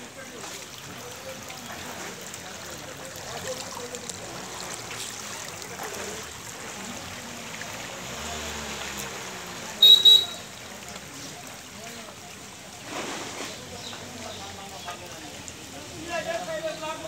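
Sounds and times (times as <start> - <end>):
river rushing and rippling: 0.0 - 12.9.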